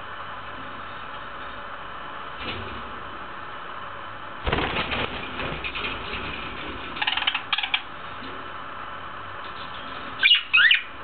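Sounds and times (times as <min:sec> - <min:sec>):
budgerigar scratchy chatter: 0:07.0 - 0:07.9
budgerigar high chirps: 0:10.2 - 0:10.9.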